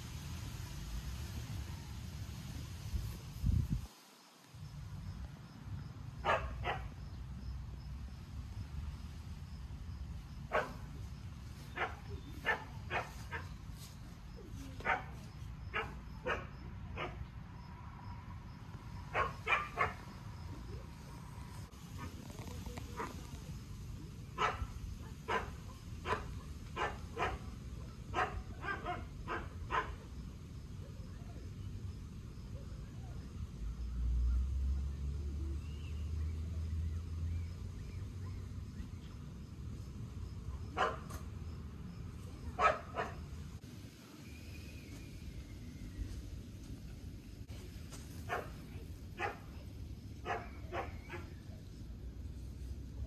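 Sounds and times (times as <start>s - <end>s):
dog barking: 6.2s - 7.0s, 10.5s - 10.9s, 11.7s - 13.5s, 14.8s - 17.3s, 19.1s - 20.1s, 24.4s - 27.5s, 28.1s - 30.1s, 40.8s - 41.2s, 42.6s - 43.3s, 48.3s - 48.6s, 49.2s - 49.5s, 50.2s - 51.4s.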